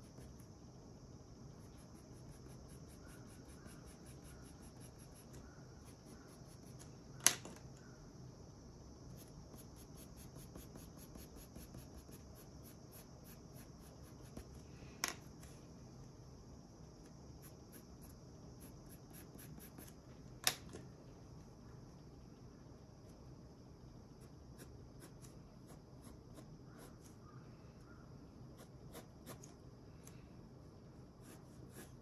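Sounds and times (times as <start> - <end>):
pencil scratching on paper: 1.6 - 6.8, 9.2 - 14.5, 17.4 - 20.0, 31.2 - 32.0.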